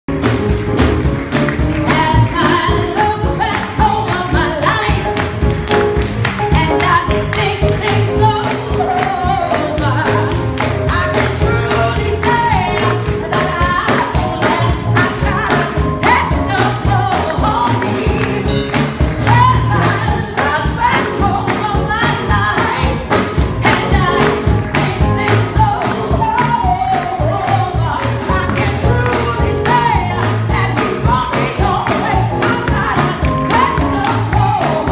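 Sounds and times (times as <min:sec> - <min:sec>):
choir clapping on the beat: 0:00.1 - 0:34.9
woman singing into a microphone: 0:01.8 - 0:05.5, 0:06.4 - 0:34.9
gospel choir singing: 0:23.7 - 0:34.9.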